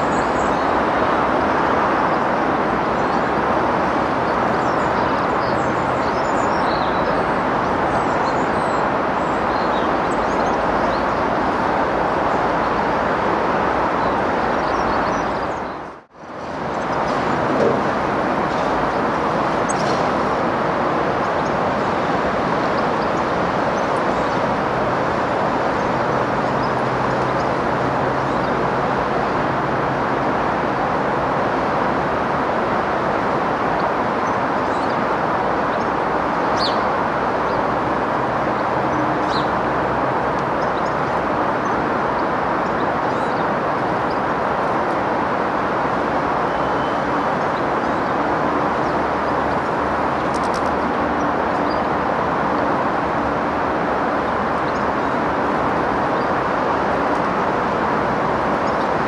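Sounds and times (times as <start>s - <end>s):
road traffic roar: 0.0s - 59.0s.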